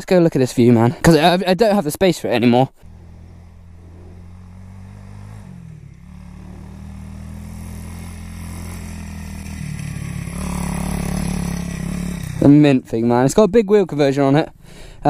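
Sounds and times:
small motorbike engine running: 2.8s - 12.8s.

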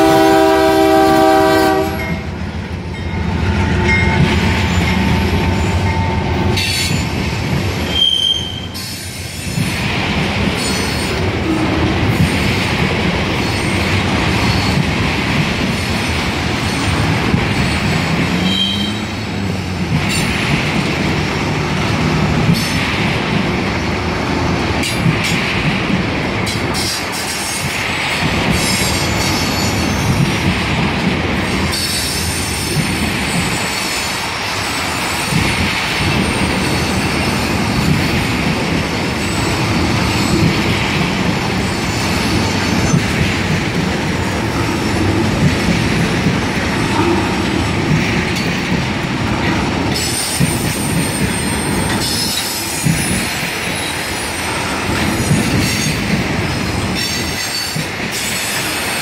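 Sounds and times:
train wheels clattering on rails: 0.0s - 59.0s
train wheel squeal: 3.8s - 7.1s, 7.8s - 9.6s, 10.6s - 11.6s, 13.4s - 14.9s, 15.8s - 19.5s, 28.6s - 30.4s, 31.7s - 38.0s, 39.1s - 40.5s, 41.6s - 43.2s, 49.9s - 59.0s.

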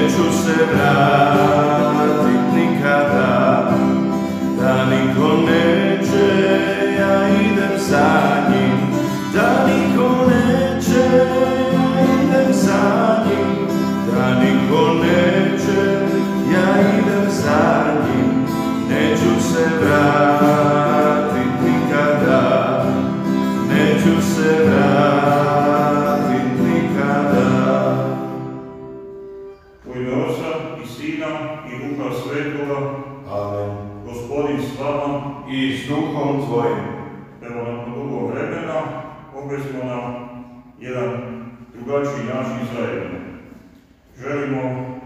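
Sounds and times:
choir singing a hymn: 0.0s - 29.0s
man speaking: 29.8s - 45.0s.

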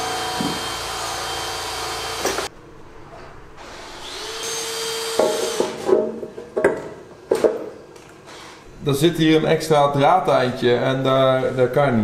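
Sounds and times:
workshop machine humming: 0.0s - 5.9s.

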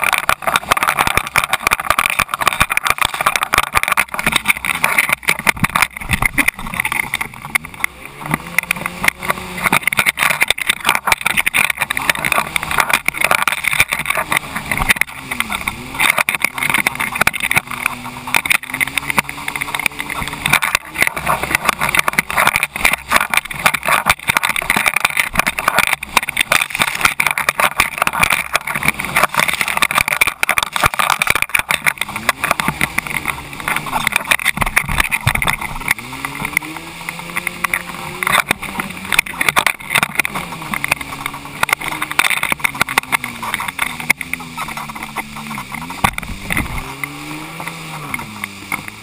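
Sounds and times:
jet ski engine running: 0.0s - 49.0s
water spray splashing on hull: 0.0s - 49.0s.

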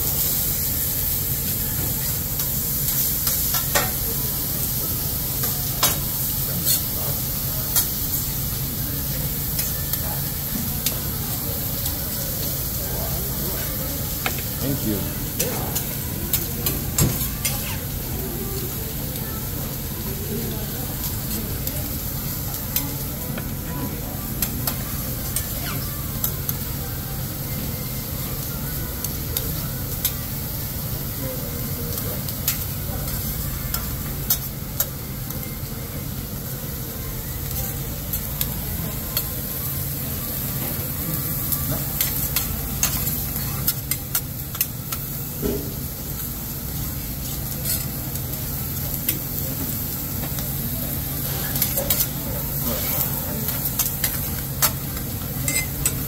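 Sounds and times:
food sizzling on griddle: 0.0s - 56.0s.

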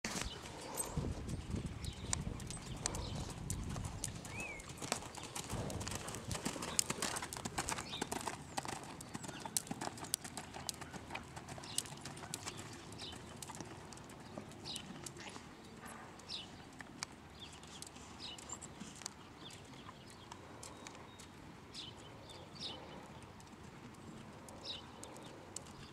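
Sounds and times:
horse hooves trotting on dirt: 0.1s - 25.9s.

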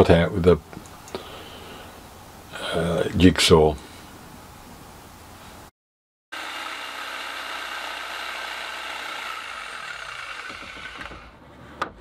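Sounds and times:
jigsaw cutting plywood: 6.4s - 11.4s.

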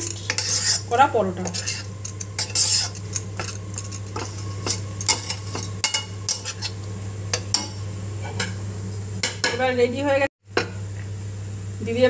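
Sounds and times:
metal spatula scraping a pan: 0.0s - 8.6s.

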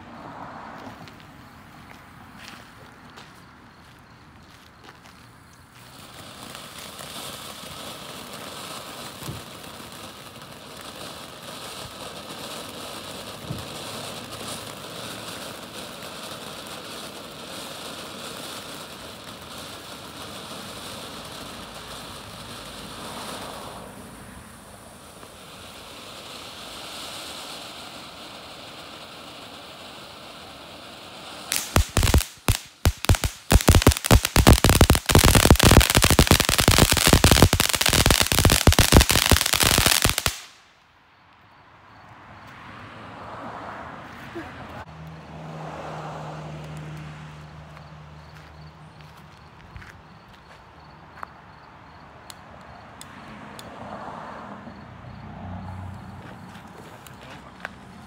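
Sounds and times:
firework crackles and pops: 0.0s - 41.0s, 55.8s - 58.0s
firework fountain hissing: 5.7s - 40.7s.

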